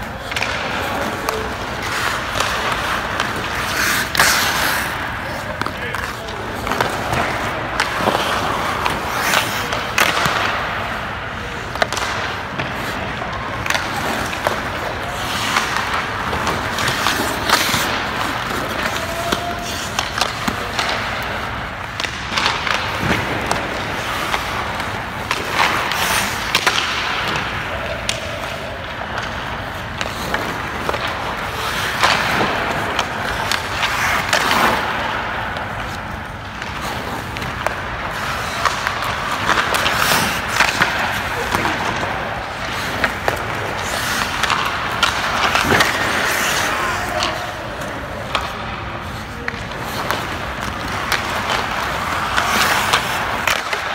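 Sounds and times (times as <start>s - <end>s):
pucks and sticks clacking: 0.0s - 53.9s
skate blades scraping ice: 0.0s - 53.9s.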